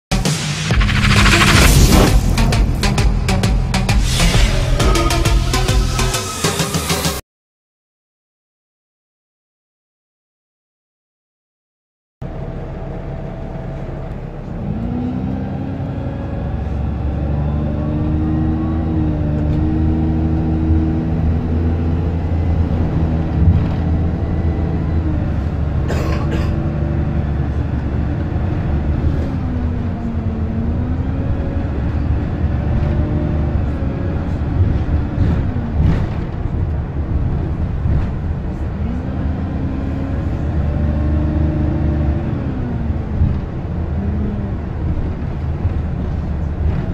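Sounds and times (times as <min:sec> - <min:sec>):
low rumble: 0:00.6 - 0:06.1
bus engine from inside: 0:12.2 - 0:46.9.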